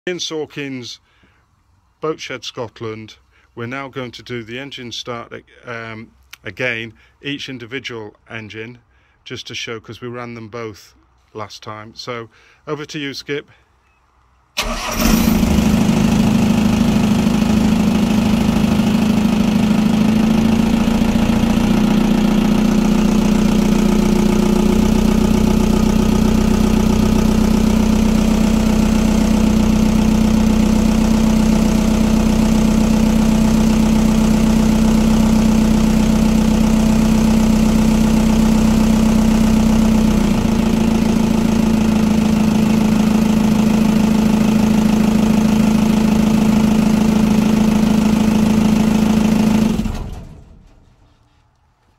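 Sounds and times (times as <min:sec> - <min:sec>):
boat engine starting and idling: 0:14.6 - 0:50.8.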